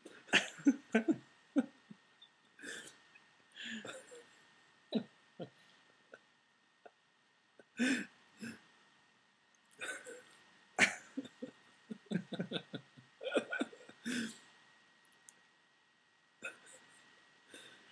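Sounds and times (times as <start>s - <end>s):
person clearing throat: 0.3s - 0.8s, 13.2s - 14.4s
person coughing: 0.3s - 0.8s, 9.8s - 10.2s, 10.8s - 11.5s, 13.2s - 14.4s.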